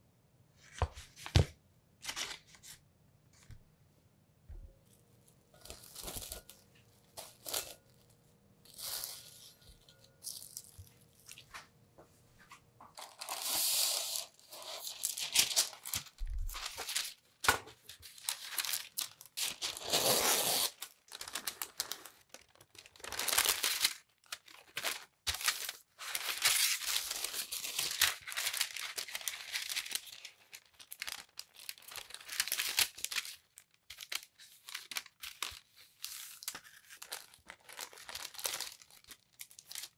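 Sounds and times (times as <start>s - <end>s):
baking paper crinkling and tearing: 5.5s - 8.1s, 13.0s - 39.9s.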